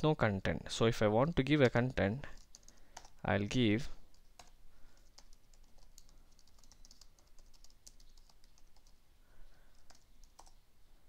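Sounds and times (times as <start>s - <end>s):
faint keyboard typing: 1.3s - 3.3s, 4.0s - 10.6s.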